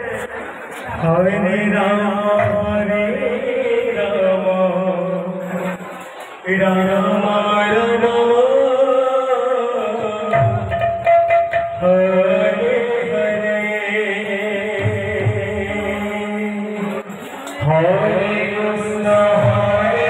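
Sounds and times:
man singing through a microphone: 0.0s - 20.0s
drum strokes: 10.0s - 13.2s.

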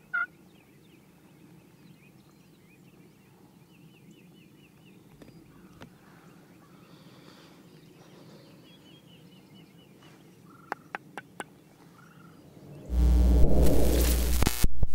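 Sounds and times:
turkey call clucks: 0.0s - 0.3s.

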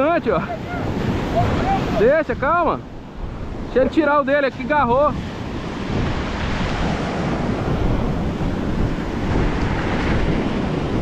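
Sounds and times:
waves breaking on sand: 0.0s - 11.0s
wind rumbling on microphone: 0.0s - 11.0s.

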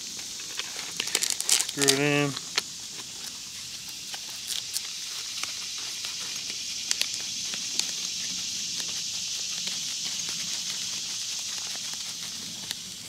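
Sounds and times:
high-pitched hiss: 0.0s - 13.0s
plastic and fabric clicks and rustles: 0.4s - 3.4s.

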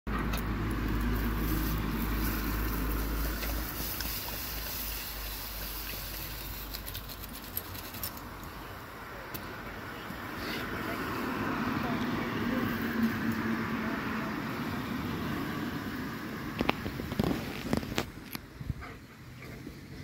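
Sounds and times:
lawn sprinkler spraying water: 0.1s - 8.6s.

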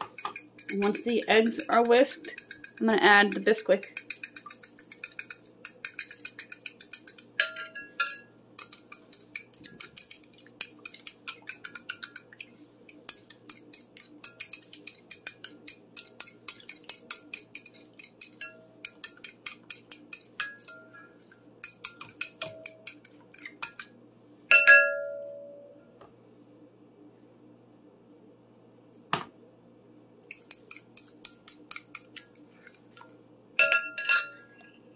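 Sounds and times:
fork beating eggs in glass bowl: 0.0s - 24.0s, 30.3s - 34.6s
fork ringing clink on glass: 33.6s - 34.6s.

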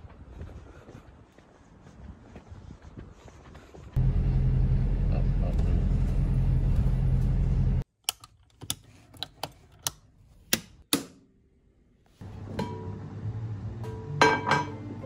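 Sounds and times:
vehicle rumble from inside: 4.0s - 7.8s.

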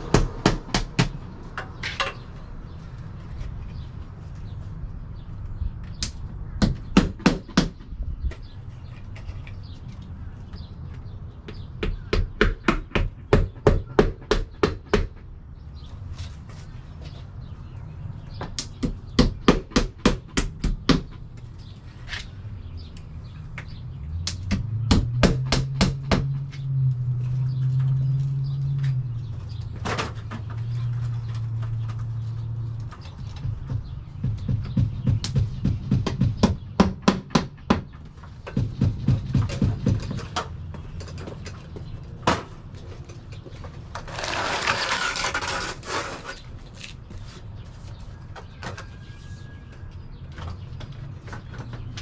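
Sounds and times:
hammer driving nails: 33.4s - 40.5s.

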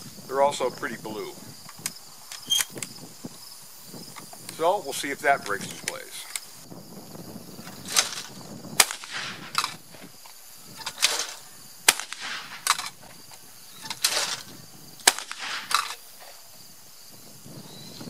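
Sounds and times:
shotgun shots: 7.8s - 9.8s, 10.9s - 13.0s, 13.9s - 16.0s.

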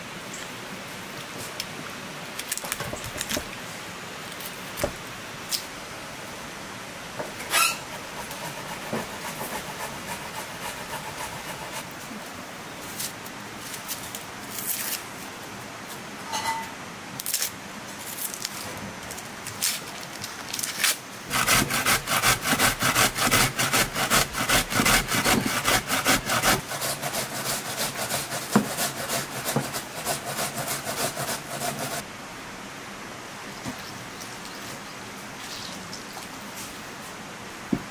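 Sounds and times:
onion grated on metal grater: 7.5s - 11.9s, 21.3s - 32.0s.

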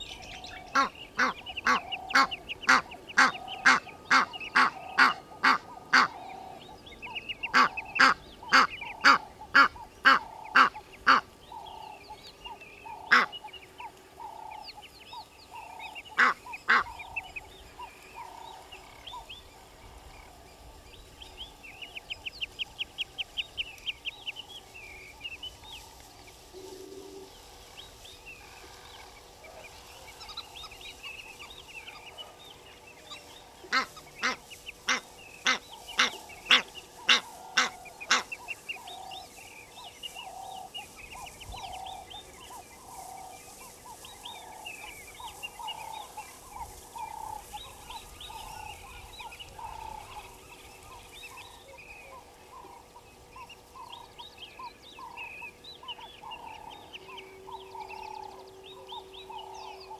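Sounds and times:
small birds chirping: 0.0s - 59.9s
goose honking: 0.7s - 6.2s, 7.4s - 11.3s, 12.9s - 13.4s, 16.1s - 17.1s, 33.6s - 39.0s.

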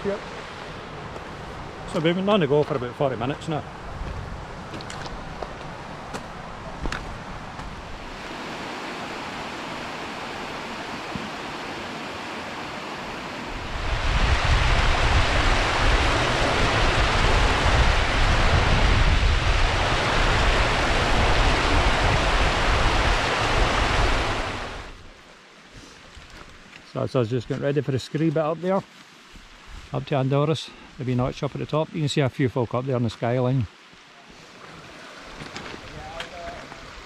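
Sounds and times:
strong wind buffeting microphone: 3.1s - 11.7s, 13.1s - 25.0s.

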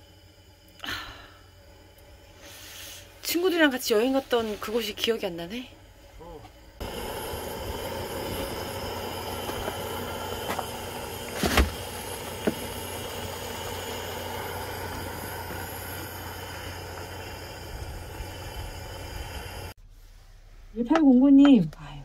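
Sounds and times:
pot boiling: 0.0s - 19.8s.

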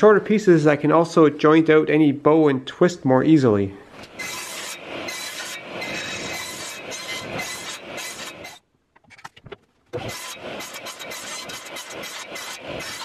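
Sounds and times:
table saw cutting wood: 4.0s - 8.6s, 10.0s - 13.0s.

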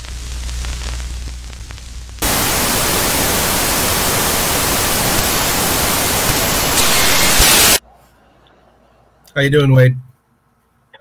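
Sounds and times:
low hum with faint crackling: 0.0s - 7.4s
loud television static hiss: 0.0s - 7.8s.

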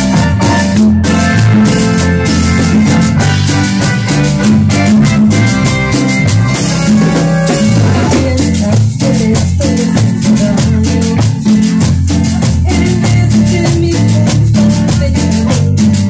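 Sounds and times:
bass line: 0.0s - 16.0s
drums and congas: 0.0s - 16.0s
live band playing dance music: 0.0s - 16.0s.

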